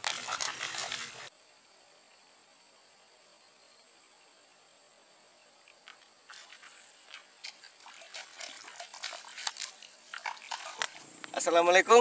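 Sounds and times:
water splashing in a swamp: 0.0s - 1.3s, 6.3s - 11.8s.

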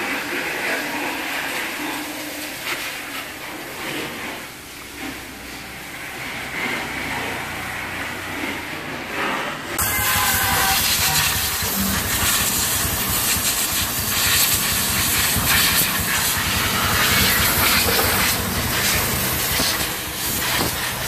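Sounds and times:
pressure washer spraying: 9.8s - 21.0s.

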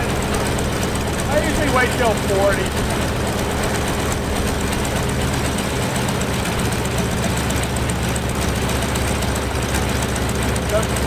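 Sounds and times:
radial aircraft engine running: 0.0s - 11.0s.

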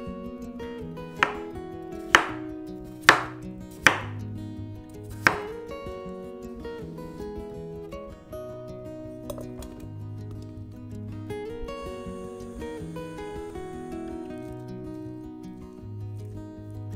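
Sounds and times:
acoustic guitar music: 0.0s - 16.9s
knife chopping on wooden board: 1.2s - 1.5s, 2.1s - 2.4s, 3.0s - 4.2s, 5.2s - 5.5s.

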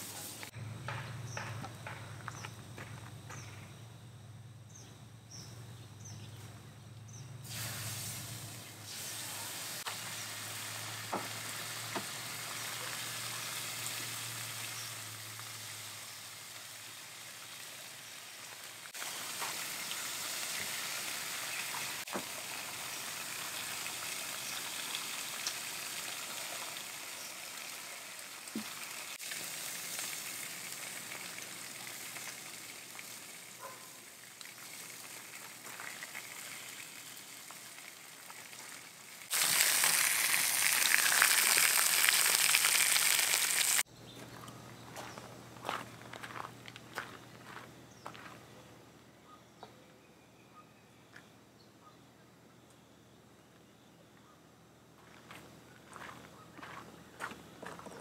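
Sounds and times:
bacon sizzling on griddle: 7.4s - 43.8s.

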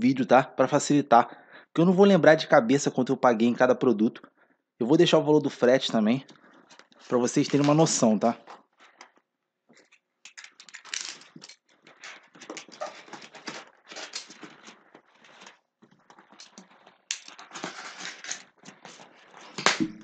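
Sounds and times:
cardboard flaps scraping and rustling: 11.9s - 19.7s.

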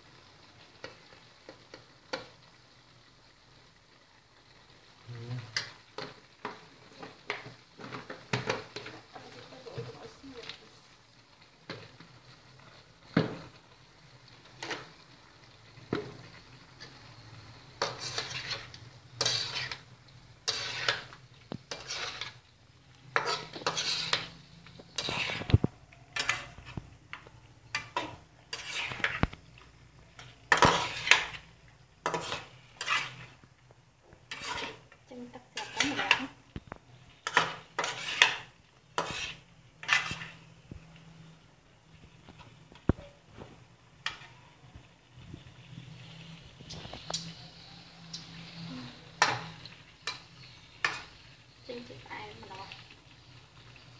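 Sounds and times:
spatula scraping metal wok: 14.4s - 15.0s, 16.0s - 36.5s, 37.1s - 40.5s, 44.0s - 44.4s, 46.0s - 53.9s.

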